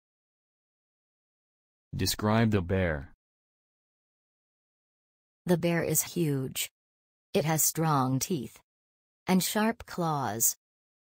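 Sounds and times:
person speaking: 2.0 - 3.1.

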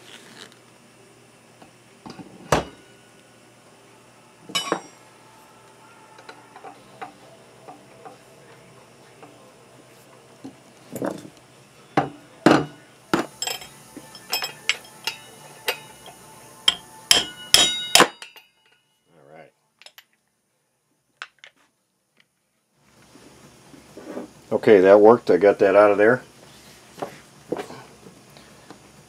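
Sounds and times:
hammer striking steel drift: 13.4 - 18.8.

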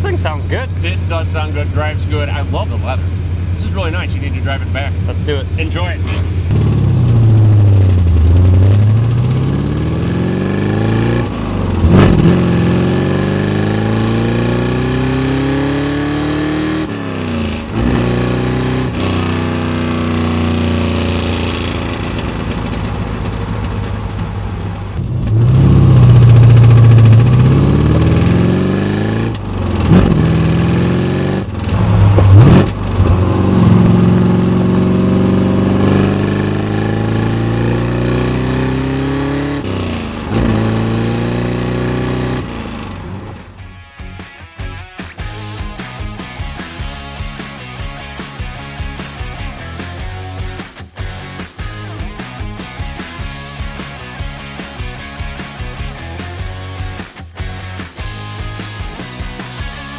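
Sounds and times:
car engine accelerating: 0.0 - 43.7.

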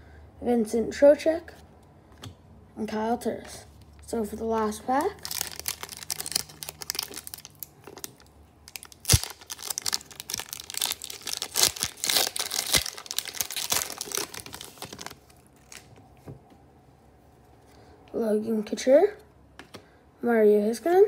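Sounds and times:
foil wrapper tearing and crinkling: 5.0 - 15.9
sharp foil snaps: 8.7 - 14.5.

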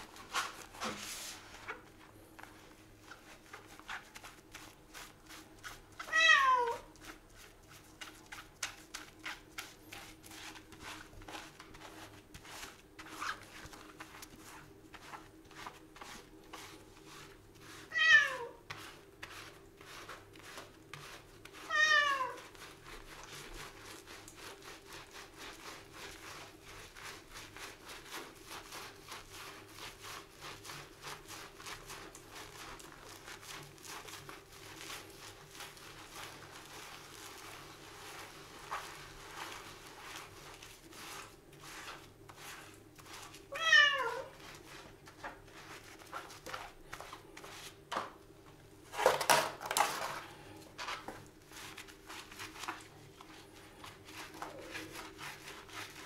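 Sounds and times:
wet fur being scrubbed: 0.0 - 47.9, 50.8 - 56.0
cat meowing: 6.1 - 6.9, 17.9 - 18.6, 21.7 - 22.4, 43.5 - 44.3.

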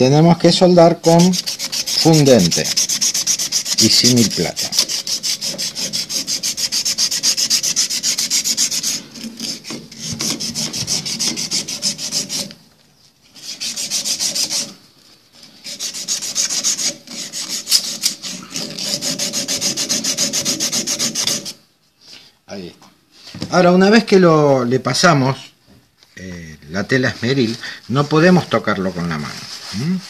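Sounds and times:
emery cloth scraping metal tube: 0.8 - 12.6, 13.2 - 21.6, 26.9 - 30.0.

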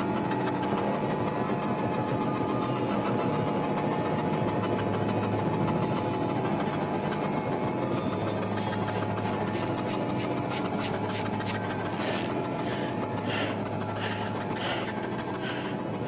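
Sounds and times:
low hum: 4.3 - 16.0
soft pulses: 8.2 - 16.0.

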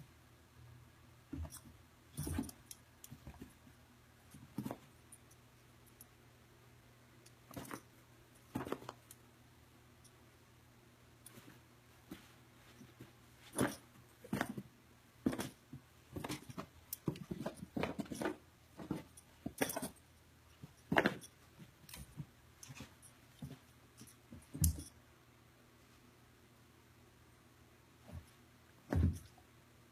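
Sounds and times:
puppy paws thumping on carpet: 11.3 - 19.9, 28.0 - 29.4.

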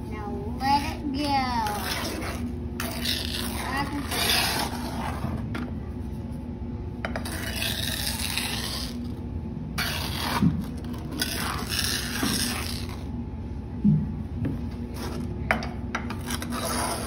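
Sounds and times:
sand scraping over metal: 1.6 - 5.3, 16.2 - 17.0.

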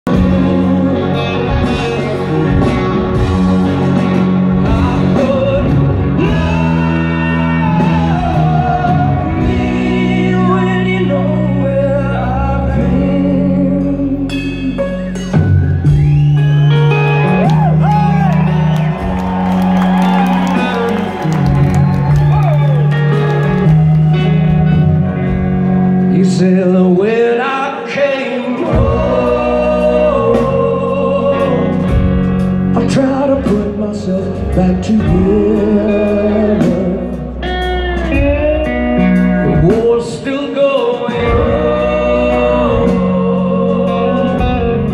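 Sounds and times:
person singing: 0.0 - 15.2, 26.0 - 44.9
drums: 0.0 - 44.9
electric guitars: 0.0 - 44.9
live blues-rock band: 0.1 - 44.9.

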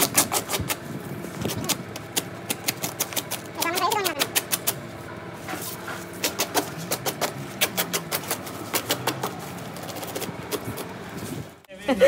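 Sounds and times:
plastic wrapping and tape tearing: 0.0 - 4.8, 6.2 - 11.5.

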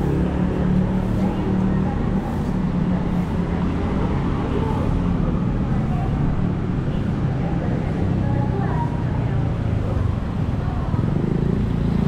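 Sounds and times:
cars driving slowly past: 0.0 - 12.0.

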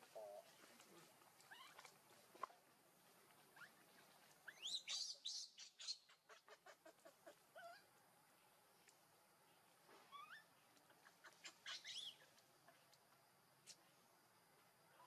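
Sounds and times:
baby monkey crying: 11.2 - 12.3.

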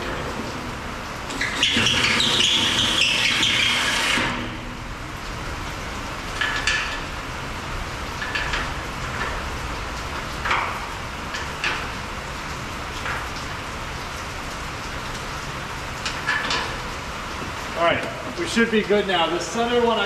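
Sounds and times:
drill boring into steel: 1.4 - 4.4.

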